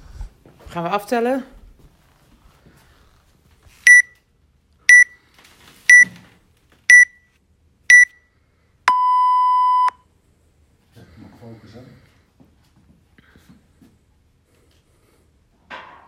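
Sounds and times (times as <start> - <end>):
long lower beep: 3.9 - 4.1, 4.9 - 5.2, 6.9 - 7.2, 7.9 - 8.2, 8.9 - 10.0
short high beeps: 3.9 - 4.2, 4.9 - 5.2, 6.9 - 7.2, 7.9 - 8.2, 8.9 - 10.0.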